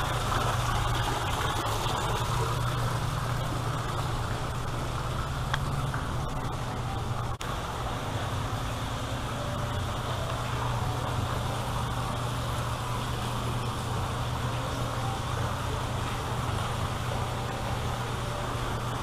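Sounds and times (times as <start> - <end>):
waterfall splashing into pond: 0.0 - 19.0.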